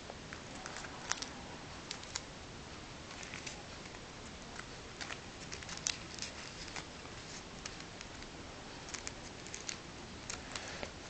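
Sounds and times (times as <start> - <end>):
paper being folded and creased: 0.4 - 2.2, 3.1 - 11.0.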